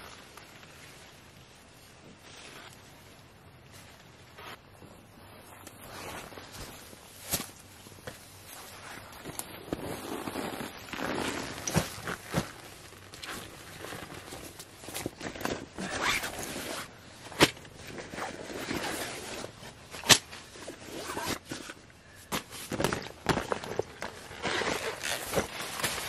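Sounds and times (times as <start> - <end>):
nylon bags rustling: 0.0 - 26.0.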